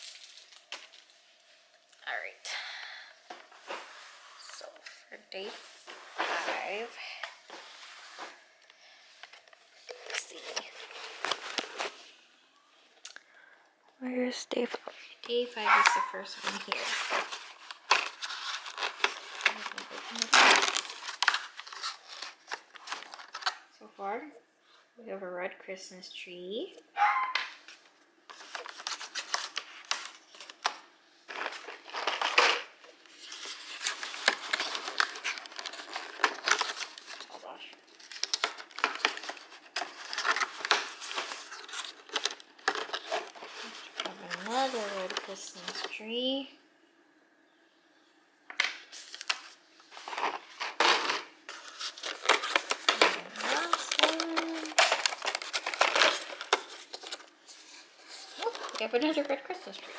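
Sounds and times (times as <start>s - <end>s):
cardboard crinkling and tearing: 0.0s - 1.2s, 9.9s - 12.0s, 16.0s - 23.7s, 28.3s - 46.0s, 48.9s - 59.9s
cardboard being torn open: 16.6s - 23.6s, 51.6s - 57.2s.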